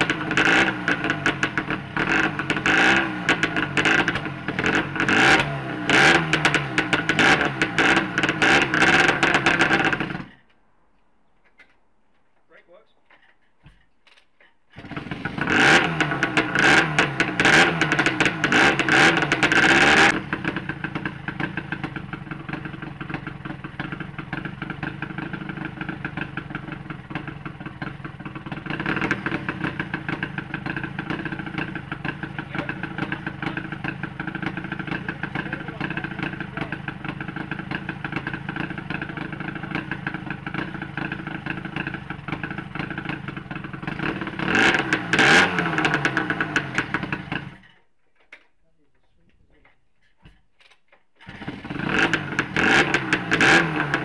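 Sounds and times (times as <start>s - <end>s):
two-stroke motorcycle engine: 0.0s - 10.5s, 13.1s - 48.5s, 49.6s - 54.0s.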